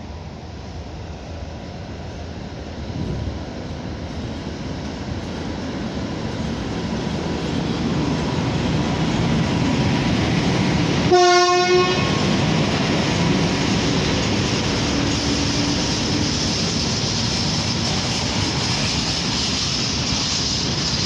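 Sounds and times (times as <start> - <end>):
electric locomotive passing: 0.0 - 21.0
train horn blast: 11.1 - 12.3.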